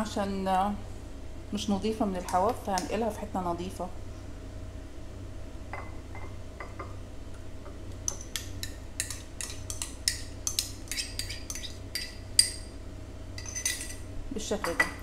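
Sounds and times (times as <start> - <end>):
metal spoon scraping ceramic ramekin: 10.9 - 12.2.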